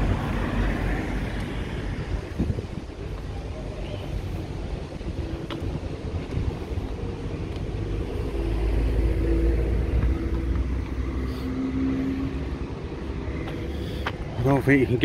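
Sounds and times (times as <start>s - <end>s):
vehicle engine rumbling past: 5.8s - 15.0s.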